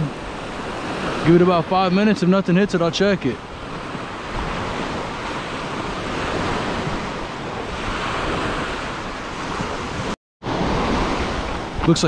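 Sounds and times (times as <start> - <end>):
surf washing up a beach: 0.0 - 12.0
wind rumbling on microphone: 0.0 - 12.0.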